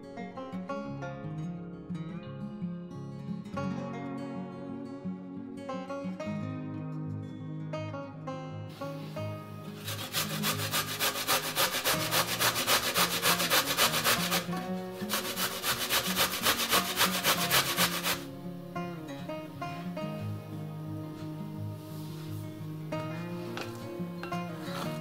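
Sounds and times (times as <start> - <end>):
soft acoustic guitar music: 0.0 - 25.0
grater rasping: 9.7 - 18.3, 24.6 - 25.0.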